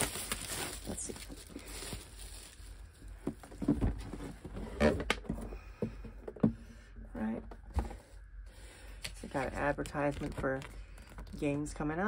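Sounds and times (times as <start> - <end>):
plastic shrink wrap crinkling: 0.0 - 3.6.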